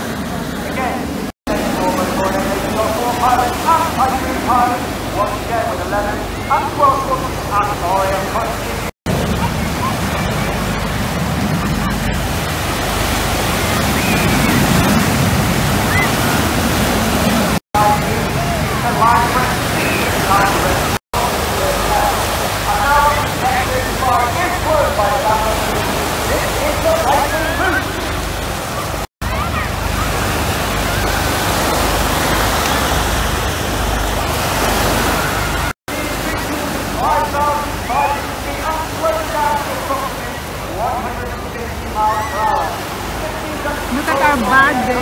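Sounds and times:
faint distant voices: 0:00.0 - 0:15.0
jets roaring overhead: 0:00.0 - 0:42.0, 0:42.6 - 0:45.0
waves breaking on shore: 0:00.0 - 0:45.0
wind on microphone: 0:09.1 - 0:21.0.

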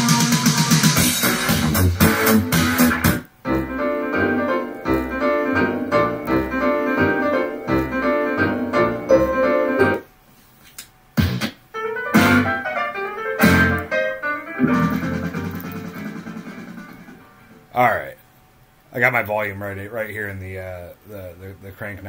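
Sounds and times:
keyboard music with steady beat: 0:00.0 - 0:10.1, 0:11.2 - 0:17.7.

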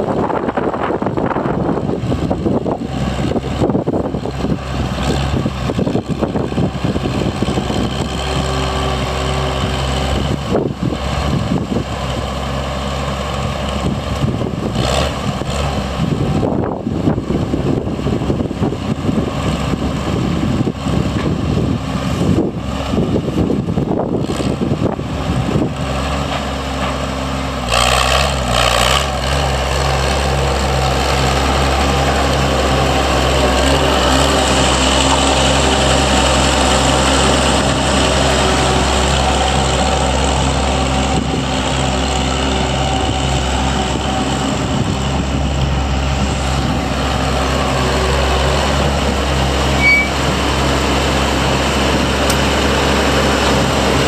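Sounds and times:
tractor engine idling: 0:29.1 - 0:54.0.

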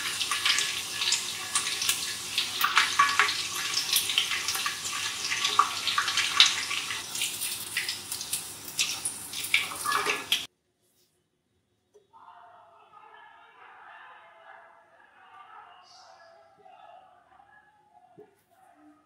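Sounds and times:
deep-frying sizzle with pops: 0:00.0 - 0:10.5.

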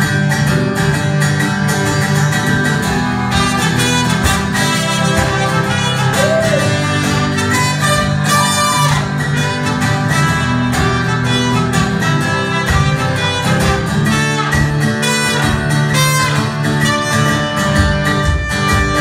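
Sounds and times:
strummed acoustic guitar: 0:00.0 - 0:19.0
trumpet playing melody: 0:02.9 - 0:19.0.

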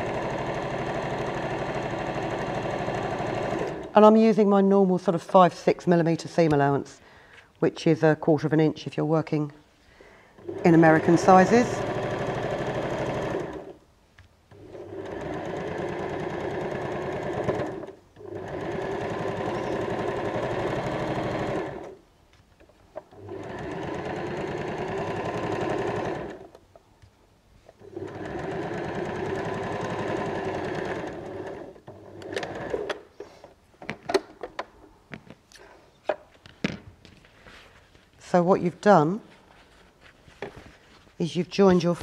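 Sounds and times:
sewing machine stitching: 0:00.0 - 0:03.9, 0:10.4 - 0:13.8, 0:14.5 - 0:22.0, 0:23.0 - 0:26.6, 0:27.8 - 0:33.1.

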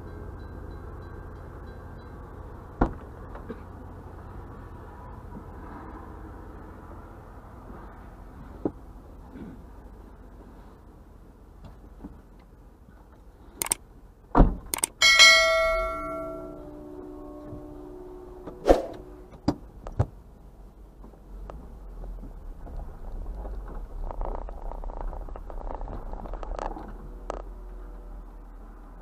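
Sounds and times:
bright bell ding: 0:15.0 - 0:18.1.

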